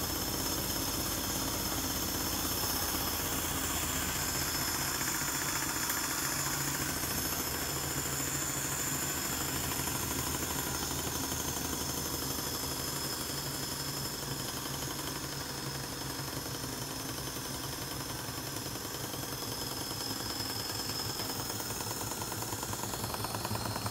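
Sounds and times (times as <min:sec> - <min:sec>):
steam hissing: 0:00.0 - 0:16.6
steam engine running: 0:00.0 - 0:23.9.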